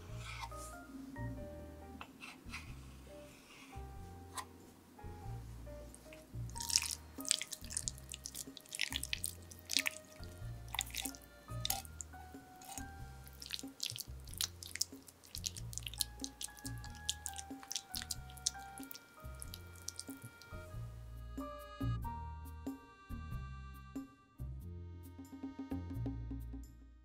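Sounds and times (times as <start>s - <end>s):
soft background music: 0.0s - 27.0s
wet squelches of fruit filling: 5.9s - 20.7s
spatula smacking filling: 6.0s - 20.6s.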